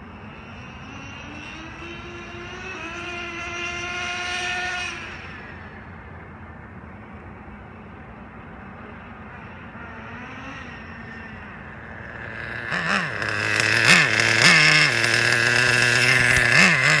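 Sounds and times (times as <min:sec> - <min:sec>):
engine throttle blips: 0:00.0 - 0:17.0
model car engine idling: 0:05.2 - 0:17.0.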